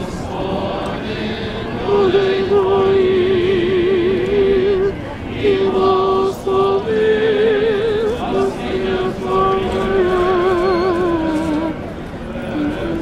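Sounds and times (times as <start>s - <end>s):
voices chanting long notes: 0.0s - 13.0s.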